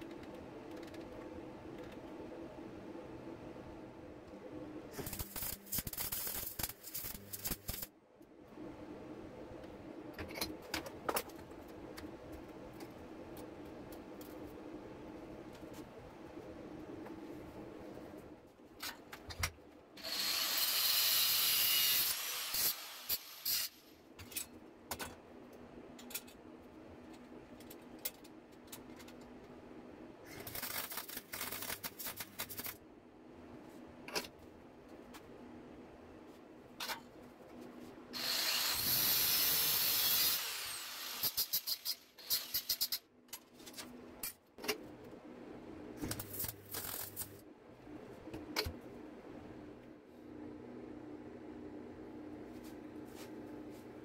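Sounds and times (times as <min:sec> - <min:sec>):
welding crackling hiss: 0:04.9 - 0:07.9, 0:20.0 - 0:23.8, 0:46.1 - 0:47.4.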